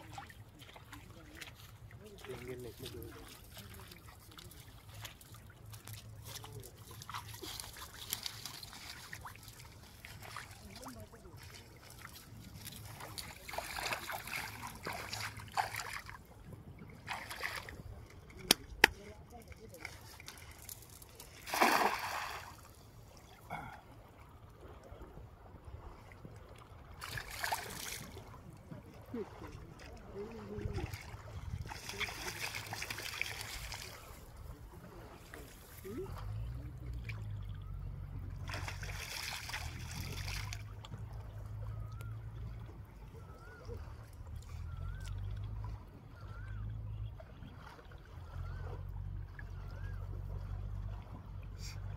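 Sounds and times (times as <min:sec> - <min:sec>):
shallow river water splashing: 0:00.0 - 0:51.9.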